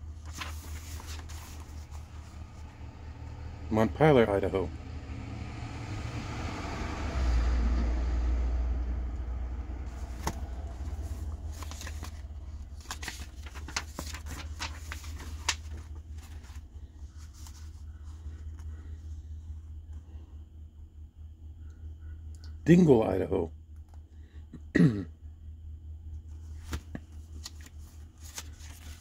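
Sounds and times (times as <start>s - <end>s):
book pages turning: 0.0s - 2.8s, 9.8s - 19.0s, 26.3s - 29.0s.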